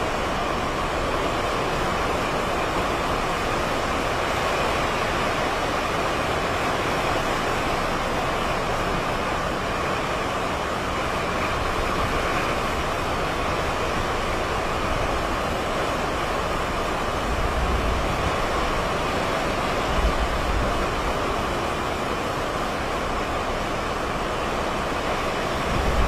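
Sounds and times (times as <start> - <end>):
strong wind through trees: 0.0 - 26.0.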